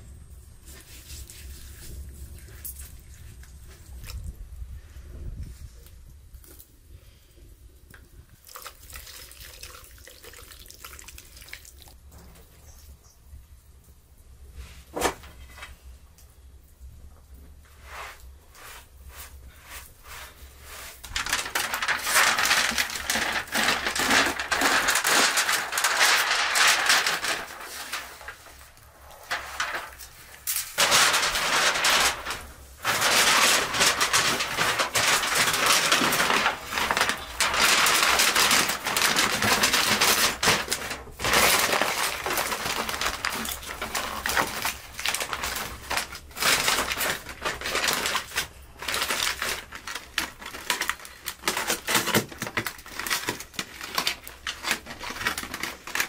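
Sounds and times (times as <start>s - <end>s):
aluminium foil crinkling: 19.7s - 56.0s.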